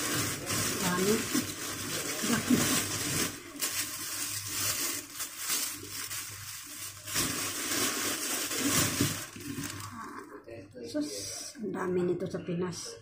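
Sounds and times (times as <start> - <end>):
plastic bags crinkling: 0.0 - 10.2.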